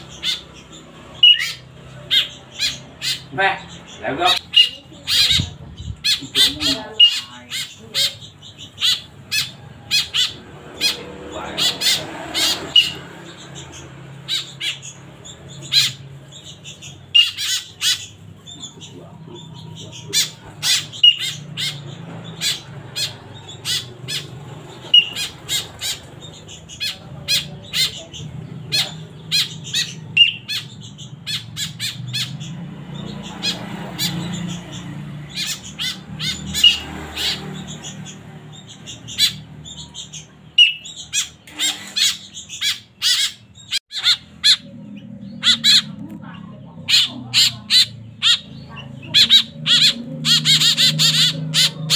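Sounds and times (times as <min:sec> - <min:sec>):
fledgling birds begging calls: 0:00.0 - 0:51.9.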